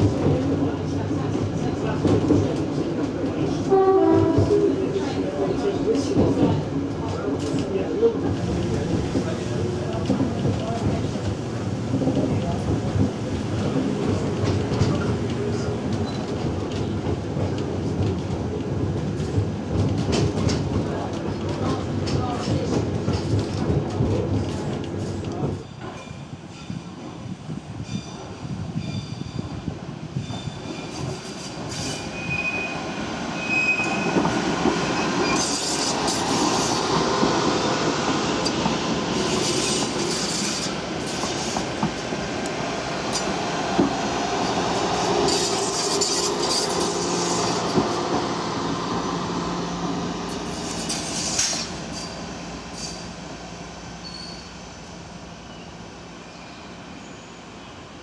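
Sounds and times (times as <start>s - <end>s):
train running on rails: 0.0s - 58.0s
high-pitched wheel squeals: 54.0s - 54.5s.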